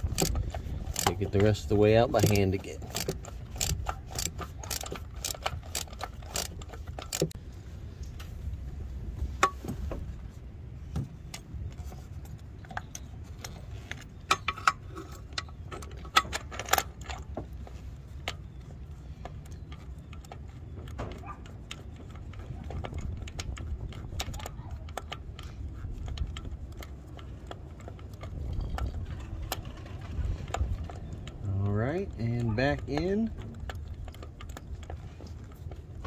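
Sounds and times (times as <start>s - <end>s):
wind rumble on microphone: 0.0s - 2.4s, 28.1s - 35.1s
ratchet clicking: 0.0s - 7.4s.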